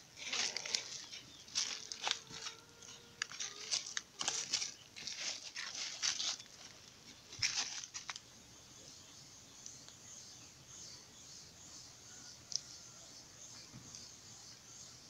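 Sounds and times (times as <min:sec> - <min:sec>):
hoe scraping dry soil: 0:00.0 - 0:07.9.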